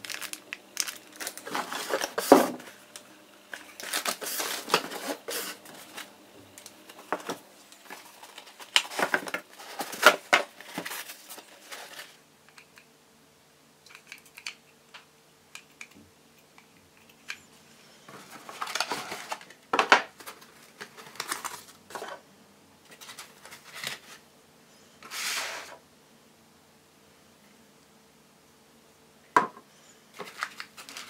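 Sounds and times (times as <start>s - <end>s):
foam and cardboard rustling: 0.0s - 2.8s, 3.6s - 6.1s, 7.0s - 12.2s.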